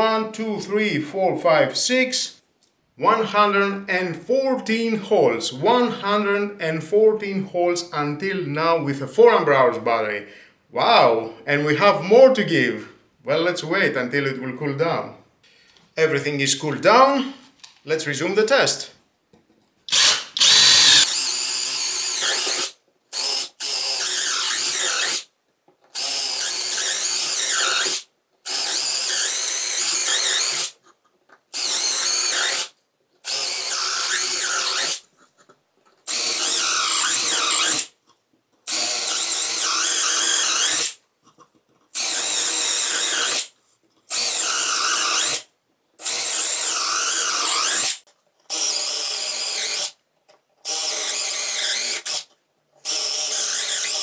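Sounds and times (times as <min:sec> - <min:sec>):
cordless drill drilling wood: 0:19.9 - 0:25.3, 0:25.9 - 0:30.8, 0:31.5 - 0:35.0, 0:36.1 - 0:37.9, 0:38.7 - 0:41.0, 0:42.0 - 0:43.5, 0:44.1 - 0:50.0, 0:50.6 - 0:54.0.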